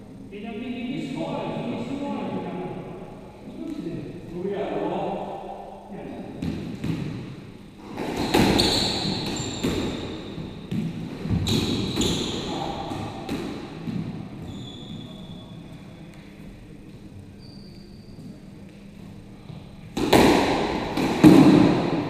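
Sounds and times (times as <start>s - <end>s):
squash ball hits echoing: 6.4s - 14.5s, 19.9s - 22.0s.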